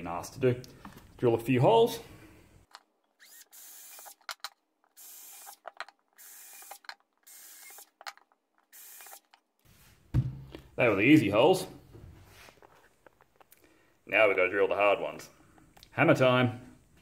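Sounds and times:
cordless drill boring wood: 3.2 - 4.4, 5.0 - 8.1, 8.7 - 9.3.

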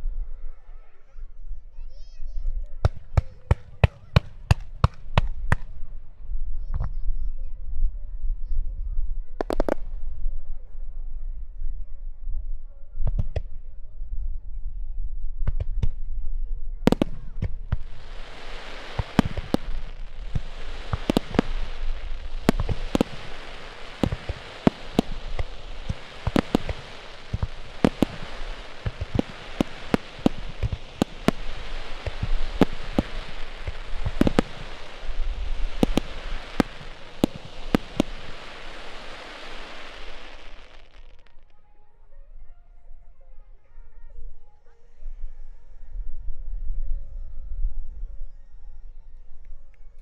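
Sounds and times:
fireworks bangs: 9.4 - 10.0, 16.9 - 41.4
fireworks crackling hiss: 9.4 - 10.0, 16.9 - 41.5.

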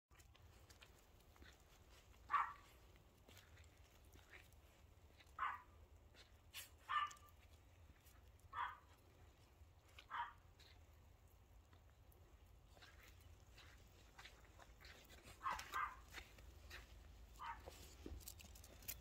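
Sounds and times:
small dog barking: 2.2 - 2.8, 5.4 - 5.8, 6.5 - 7.4, 8.5 - 9.0, 10.0 - 10.8, 15.3 - 16.8, 17.4 - 17.8.

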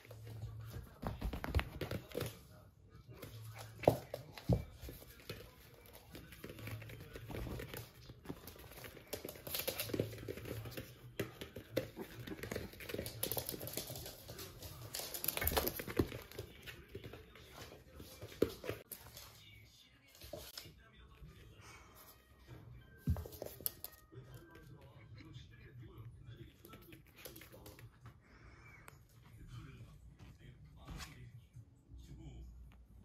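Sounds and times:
puppy paws scrabbling: 0.0 - 20.7.

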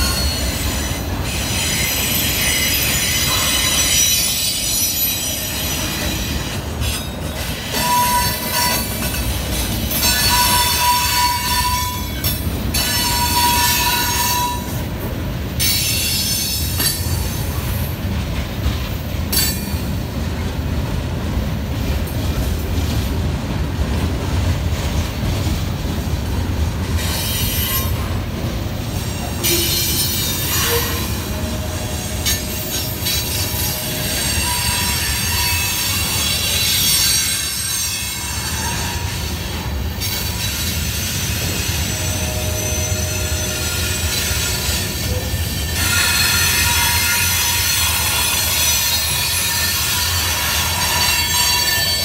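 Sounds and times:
freight train wheels rumbling: 0.0 - 52.0.

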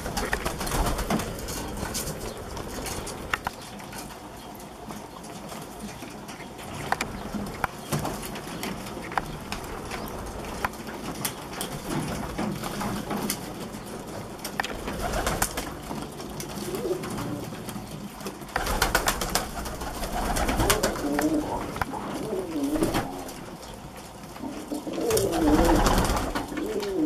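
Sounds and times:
beaks pecking in a tray: 0.0 - 27.0
pigeons cooing: 0.0 - 27.0.

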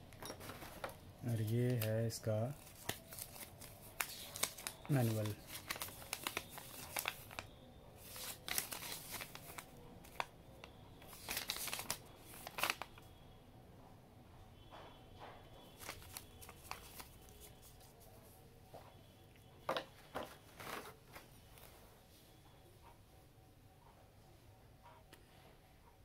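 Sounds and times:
paper rustling and crinkling: 0.4 - 10.3, 11.0 - 13.0, 15.6 - 18.4, 20.0 - 21.7.

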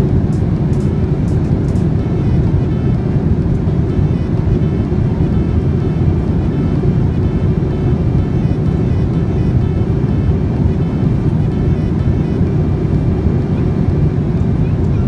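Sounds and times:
airliner cabin engine rumble: 0.0 - 15.0.

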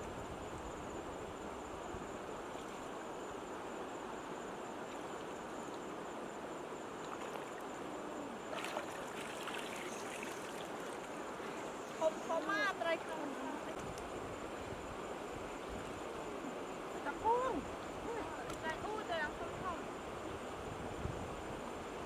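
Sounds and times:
stream water trickling: 0.5 - 22.0
water splashing: 8.5 - 12.0.

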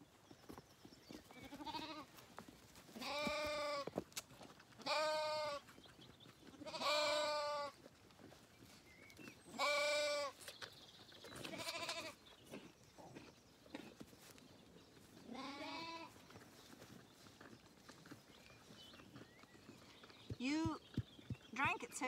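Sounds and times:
lambs bleating: 1.4 - 2.1, 3.0 - 3.8, 4.8 - 5.6, 6.6 - 7.8, 9.6 - 10.4, 11.5 - 12.2, 15.3 - 16.2.

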